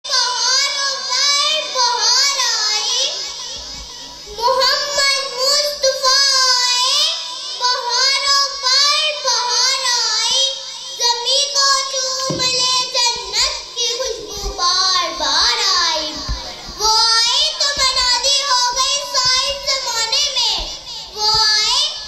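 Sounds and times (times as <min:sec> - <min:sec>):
girl chanting into a microphone: 0:00.1 - 0:22.0.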